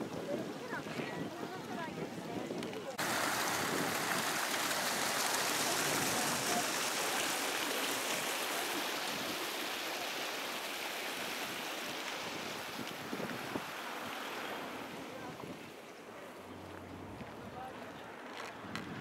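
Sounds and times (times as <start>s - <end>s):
water rushing over a weir: 2.9s - 16.8s.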